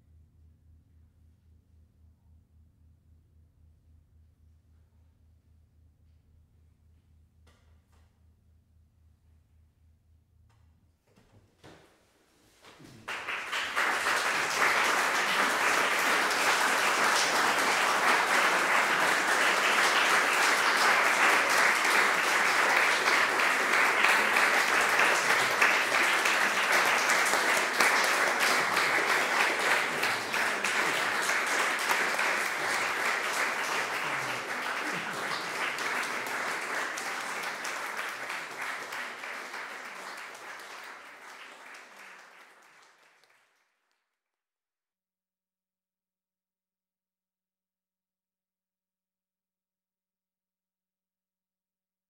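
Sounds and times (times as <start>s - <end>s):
audience applauding: 12.6s - 43.7s.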